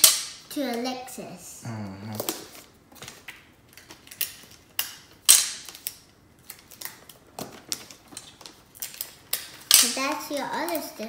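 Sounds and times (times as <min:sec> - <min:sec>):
wrapping paper crinkling: 0:02.4 - 0:11.0.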